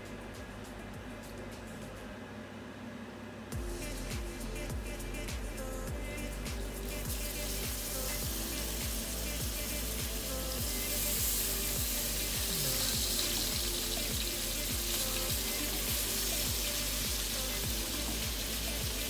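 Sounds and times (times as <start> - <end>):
background music with steady beat: 0.0 - 2.6, 3.5 - 19.0
meat sizzling in frying pan: 6.8 - 19.0.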